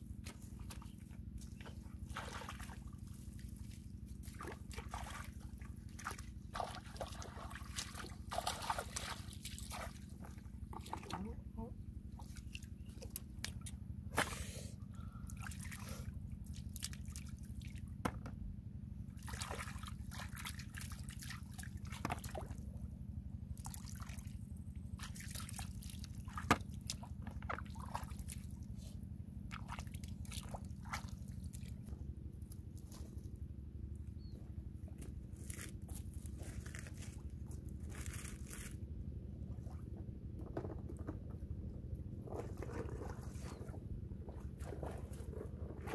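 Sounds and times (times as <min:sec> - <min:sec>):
muddy water splashing: 0:00.2 - 0:11.4, 0:15.1 - 0:18.0, 0:19.1 - 0:22.8, 0:23.6 - 0:33.2, 0:42.2 - 0:45.9.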